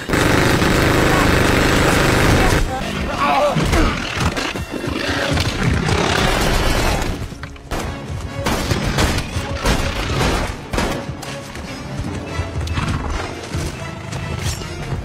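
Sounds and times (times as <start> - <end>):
dense burst of gunfire: 0.0 - 2.7
separate gunshots: 0.0 - 2.7
dramatic music score: 0.0 - 15.0.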